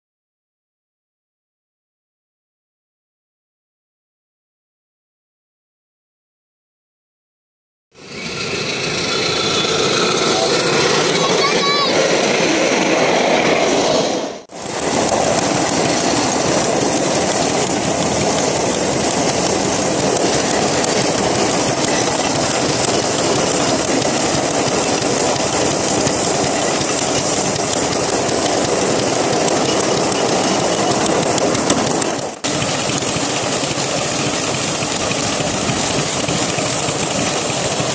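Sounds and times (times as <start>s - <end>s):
steam locomotive exhaust chuffs: 8.0s - 13.8s, 14.4s - 37.9s
wheels clattering on rails: 8.0s - 37.9s
steam hiss: 14.5s - 37.9s.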